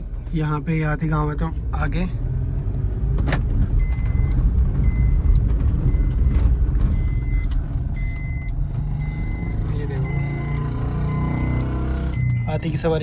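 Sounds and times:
road and engine rumble: 0:00.0 - 0:13.0
electronic beeps: 0:03.8 - 0:13.0.

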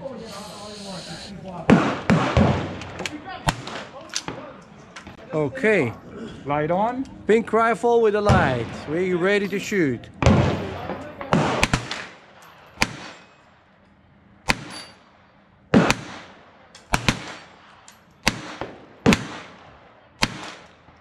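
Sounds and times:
rifle gunshots: 0:01.6 - 0:04.5, 0:08.3 - 0:09.2, 0:10.2 - 0:13.3, 0:14.4 - 0:14.9, 0:15.7 - 0:21.0.

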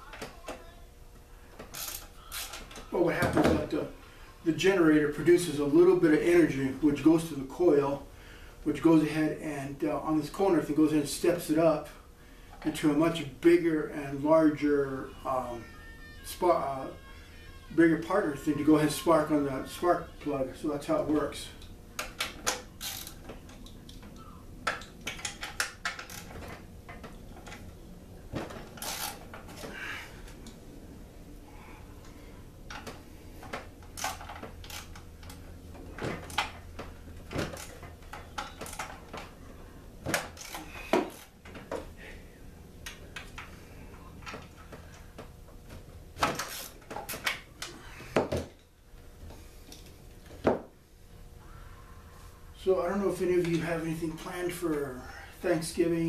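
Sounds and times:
tools and metal parts clinking: 0:24.7 - 0:27.6.

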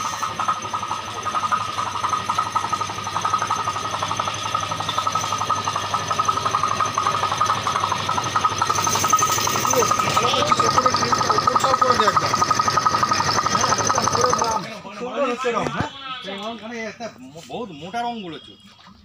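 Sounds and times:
small motor pulsing: 0:00.0 - 0:14.8.

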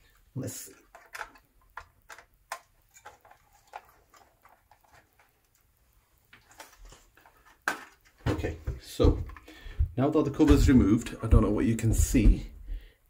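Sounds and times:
plastic clicks and taps: 0:00.9 - 0:05.0.

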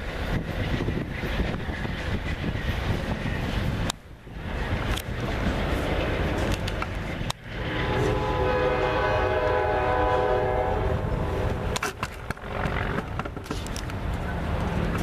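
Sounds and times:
train rumble: 0:00.0 - 0:15.0
train horn blast: 0:07.6 - 0:11.8.

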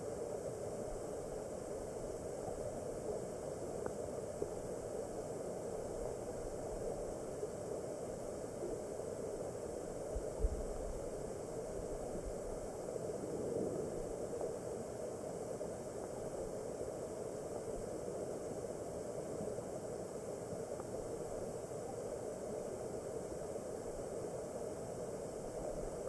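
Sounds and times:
muffled underwater stream rush: 0:10.1 - 0:15.0.

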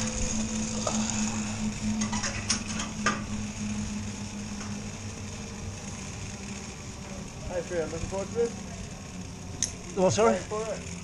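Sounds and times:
low mechanical hum: 0:00.0 - 0:11.0
sharp metallic clicks: 0:09.6 - 0:09.8.

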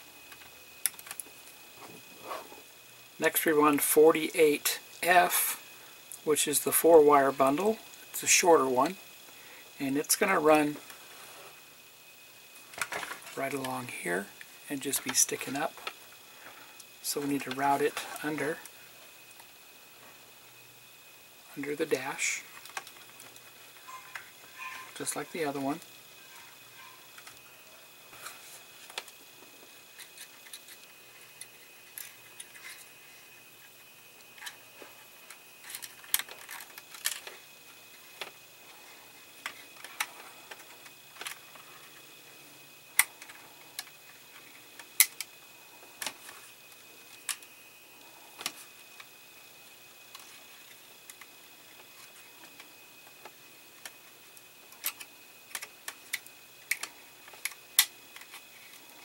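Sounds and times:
clicks of handling plastic parts: 0:54.7 - 0:58.8.

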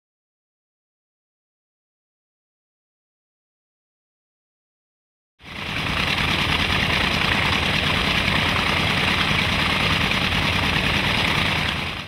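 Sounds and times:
piston aircraft engine running: 0:05.4 - 0:12.0
propeller rush of air: 0:05.4 - 0:12.0.

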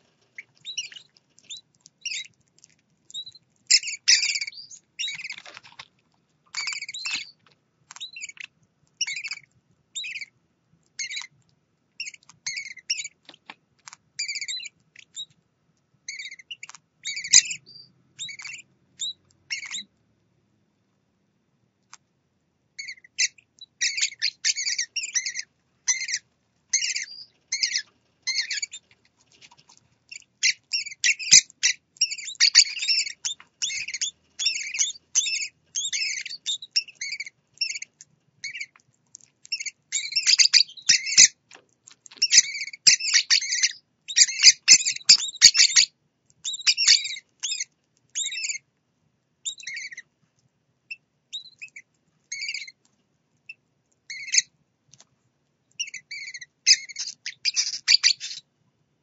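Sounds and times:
chicks begging chirps: 0:00.3 - 0:02.3, 0:03.1 - 0:05.8, 0:08.0 - 0:10.3, 0:16.1 - 0:19.9, 0:22.8 - 0:38.7, 0:39.6 - 0:41.4, 0:42.2 - 0:48.6, 0:54.1 - 0:54.5, 0:55.8 - 0:58.4.

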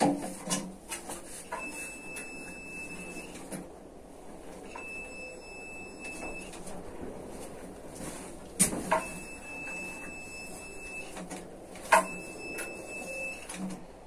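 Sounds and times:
handling noise of tank: 0:00.0 - 0:03.7
multimeter high beep: 0:01.5 - 0:03.4, 0:04.7 - 0:06.6, 0:08.9 - 0:11.2, 0:11.9 - 0:13.6.

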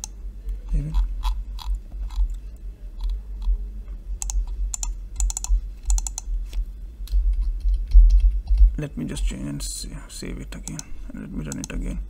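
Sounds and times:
low hum: 0:00.0 - 0:12.0
typing on computer keyboard: 0:04.2 - 0:06.3.

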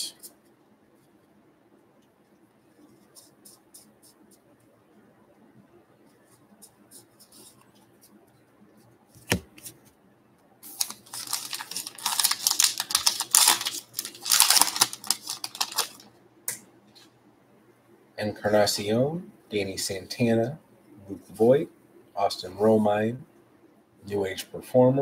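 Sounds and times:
wrapper crinkling: 0:10.6 - 0:16.1.

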